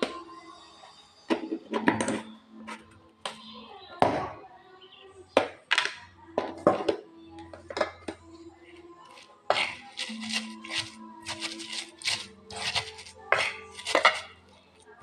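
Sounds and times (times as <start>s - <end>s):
spoon scooping sugar: 9.1s - 14.4s.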